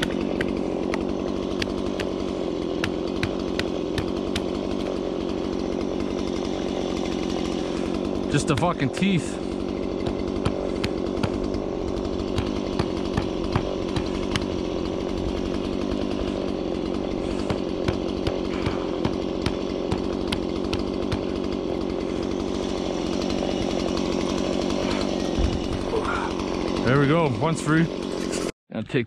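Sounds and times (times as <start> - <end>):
chainsaw running at high revs: 0.0 - 28.6.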